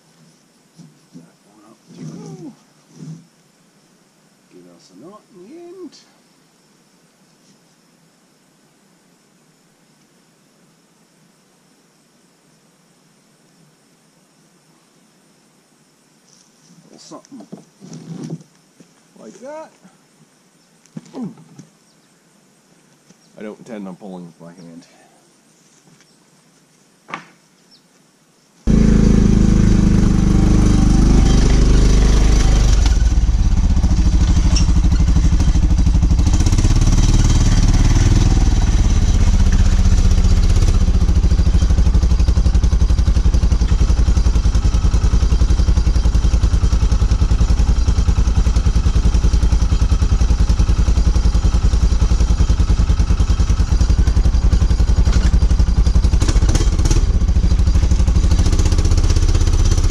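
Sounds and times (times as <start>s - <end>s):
utility vehicle engine running: 28.7s - 59.9s.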